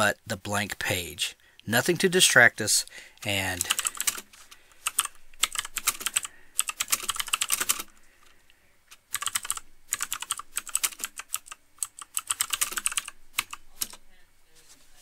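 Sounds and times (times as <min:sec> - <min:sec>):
typing on computer keyboard: 0:03.6 - 0:08.0, 0:09.1 - 0:14.0.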